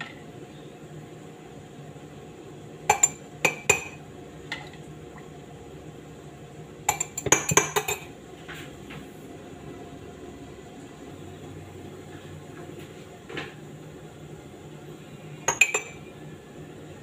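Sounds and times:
spoon clinking in a cup: 0:02.9 - 0:04.0, 0:06.9 - 0:08.1, 0:15.5 - 0:16.1.

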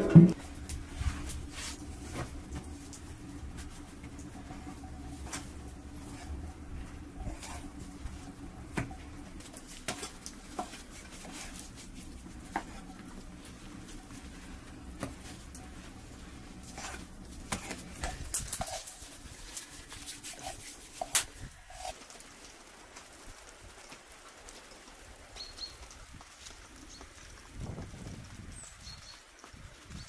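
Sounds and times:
hands handling bread dough: 0:00.0 - 0:22.0
low steady hum: 0:00.0 - 0:28.4.

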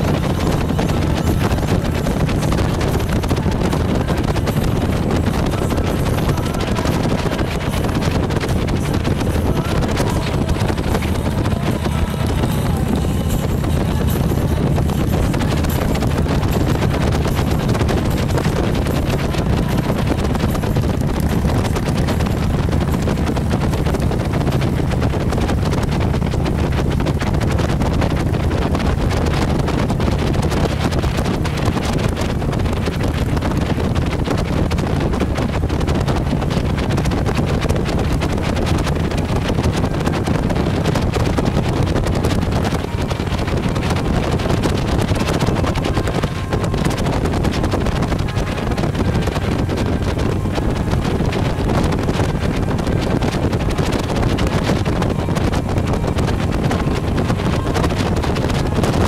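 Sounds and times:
motorcycle engines droning: 0:00.0 - 0:59.0
wind noise on microphone: 0:00.0 - 0:59.0.

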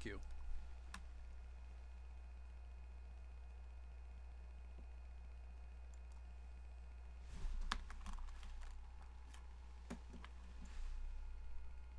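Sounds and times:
low hum: 0:00.0 - 0:11.9
computer keys clicking: 0:07.6 - 0:10.4.

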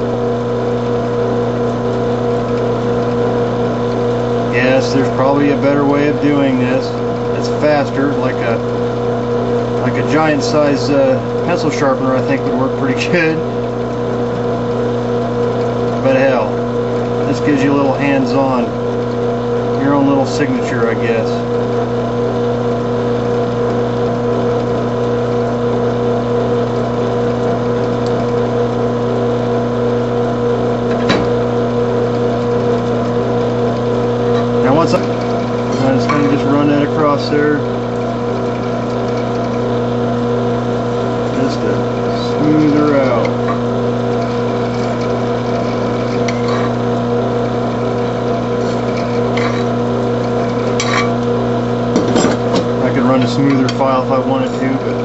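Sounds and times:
cutter shaving metal: 0:00.0 - 0:55.0
drill press motor humming: 0:00.0 - 0:55.0
file scraping metal: 0:32.5 - 0:39.9, 0:41.1 - 0:51.2.

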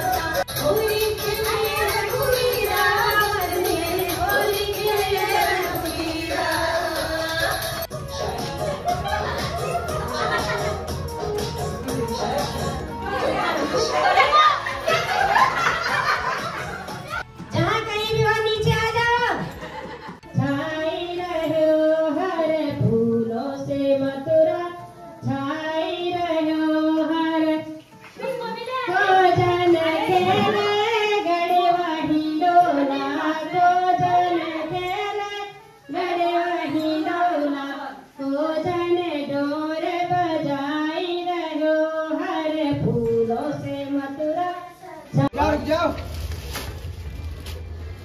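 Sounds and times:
woman singing into a microphone: 0:00.0 - 0:07.9, 0:20.3 - 0:45.3.

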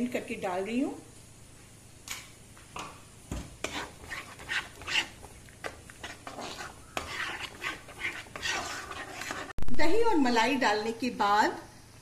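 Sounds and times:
spatula stirring thick paste: 0:03.6 - 0:09.6.

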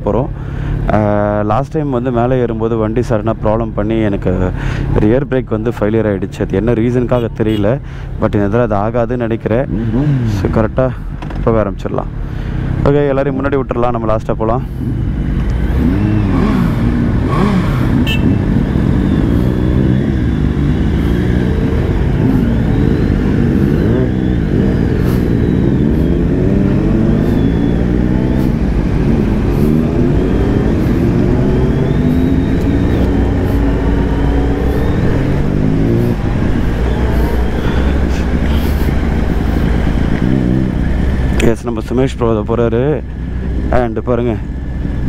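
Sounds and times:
motorcycle engine accelerating: 0:09.7 - 0:11.4, 0:14.7 - 0:41.6.

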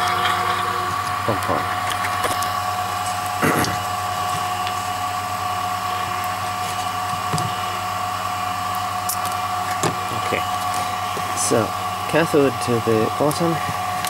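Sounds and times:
vacuum pump humming and whining: 0:00.0 - 0:14.0.

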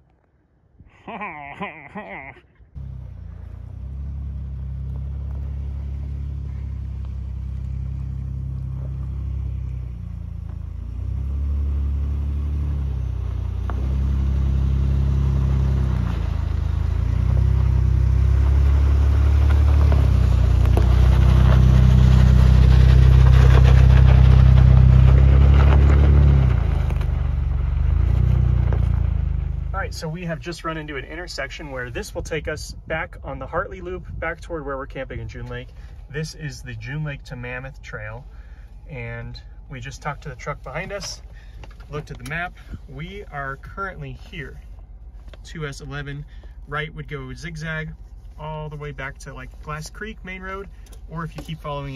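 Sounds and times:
gravel crackling under tyres: 0:02.7 - 0:51.9
truck engine revving: 0:02.8 - 0:30.8.

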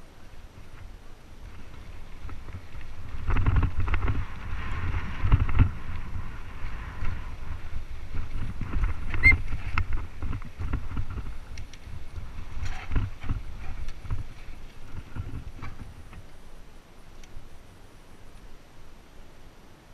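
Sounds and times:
wind rumbling on microphone: 0:00.0 - 0:19.9
bike knocks and rattles: 0:01.5 - 0:16.3
short squeak: 0:09.2 - 0:09.4.

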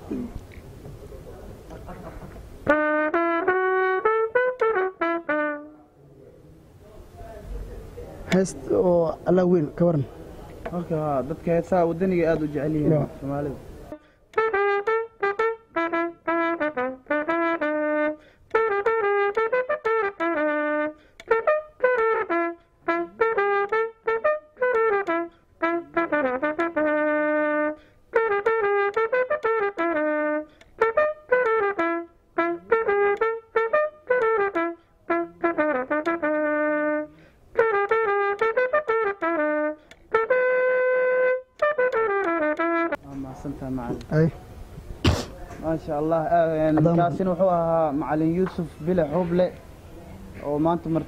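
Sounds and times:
solo trumpet melody: 0:02.6 - 0:05.9, 0:13.9 - 0:43.7
player breathing: 0:18.2 - 0:18.5, 0:27.8 - 0:28.1, 0:37.1 - 0:37.5.

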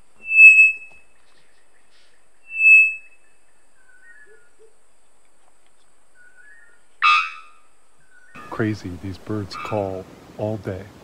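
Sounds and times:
faint thin whistled bird notes: 0:00.2 - 0:04.8, 0:06.1 - 0:08.5
bird calling loud bonk note: 0:07.0 - 0:07.7, 0:08.3 - 0:10.0.

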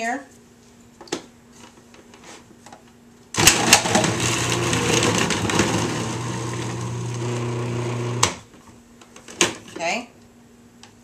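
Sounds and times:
grating disc shredding butter: 0:03.4 - 0:08.2
food processor motor humming: 0:03.4 - 0:08.4.

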